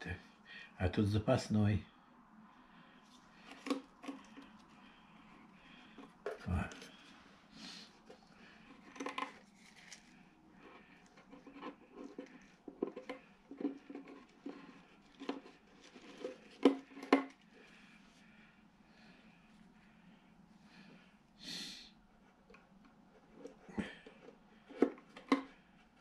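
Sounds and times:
fingers handling rubber balloon: 3.4 - 7.2, 7.8 - 17.8, 22.2 - 26.0.

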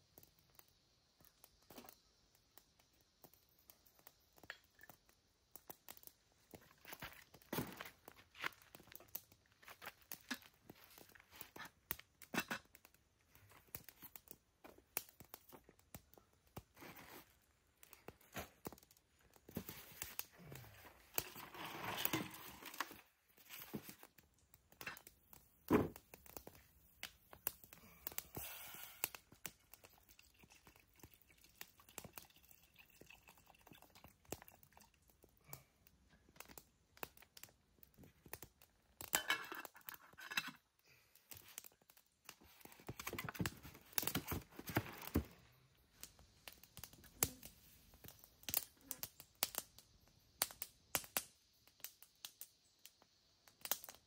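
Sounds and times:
camp cookware clicking and knocking: 12.2 - 12.9, 39.0 - 40.6.

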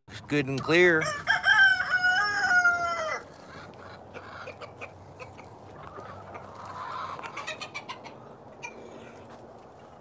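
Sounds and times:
rooster crowing: 1.0 - 3.3
faint clicks from chickens: 3.6 - 9.9.

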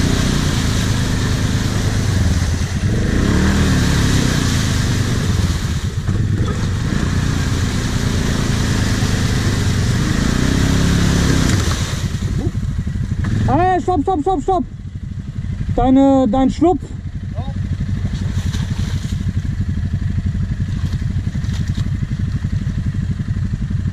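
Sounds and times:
atv engine revving: 0.0 - 23.9
wheels spinning in mud: 17.8 - 23.6.

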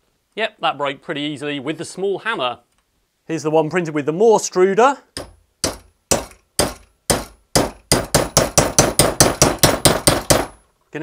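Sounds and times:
hammer knocking on plastic: 5.2 - 10.6.

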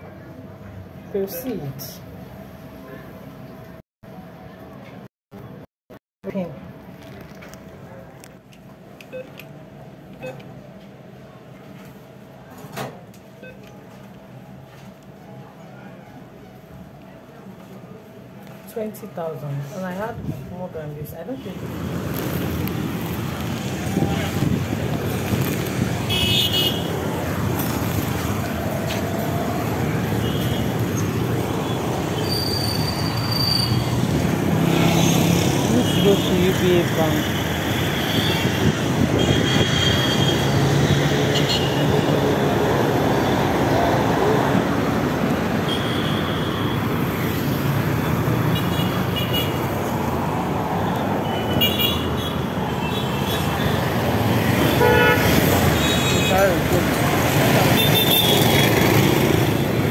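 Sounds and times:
street traffic rumble: 0.0 - 59.9
vehicle horn toots: 26.1 - 26.9, 45.7 - 46.8, 54.6 - 56.4.

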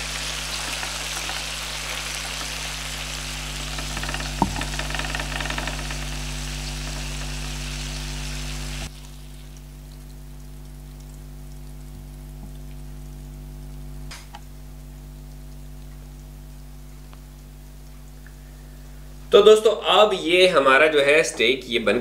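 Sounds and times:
meat sizzling in butter: 0.0 - 9.6
low hum: 2.4 - 19.3.

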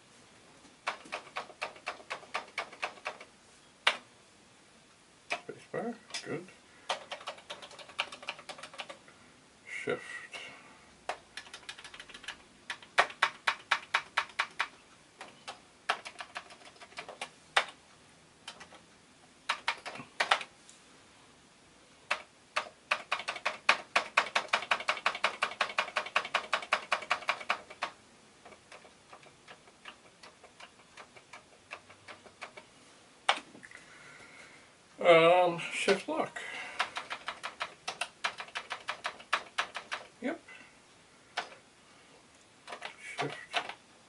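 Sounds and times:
keyboard keys clicking: 0.8 - 4.0, 6.9 - 9.0, 11.1 - 17.8, 18.4 - 18.8, 19.5 - 20.5, 22.1 - 32.6, 36.8 - 40.1, 42.7 - 43.8.

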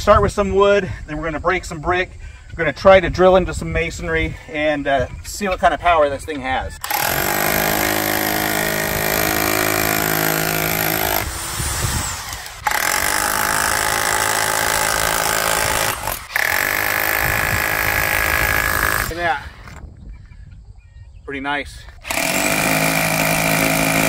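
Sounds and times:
rotary hammer drill boring: 6.8 - 19.8, 22.0 - 24.0.

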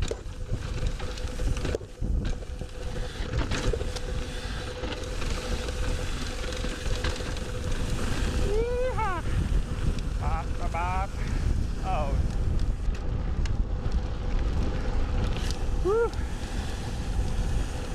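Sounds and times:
tyres crunching over gravel: 0.0 - 8.6
faint steady whine: 0.0 - 17.9
wind on microphone: 0.0 - 17.9.

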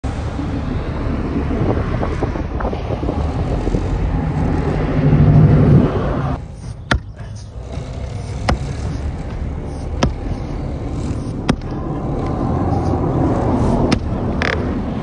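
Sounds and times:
low rumble with rushing noise: 0.0 - 15.0
axe striking wood: 6.9 - 7.2, 8.4 - 8.7, 10.0 - 10.2, 11.4 - 11.7, 13.9 - 14.1.

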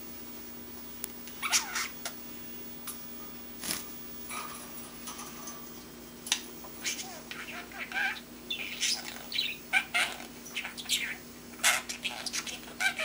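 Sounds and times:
budgie chirping and warbling: 1.4 - 2.1, 6.6 - 13.0.

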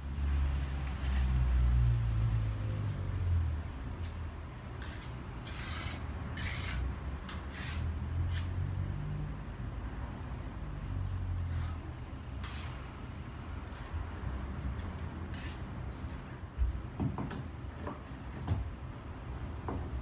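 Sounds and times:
hand tool scraping: 0.8 - 1.9, 4.8 - 8.5, 11.4 - 12.9, 14.8 - 16.2.

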